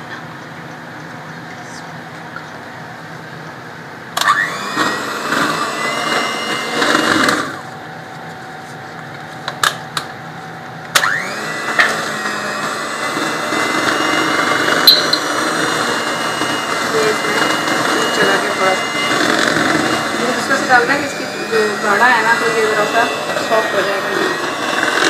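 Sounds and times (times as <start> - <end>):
electric mixer whining: 4.1 - 25.0.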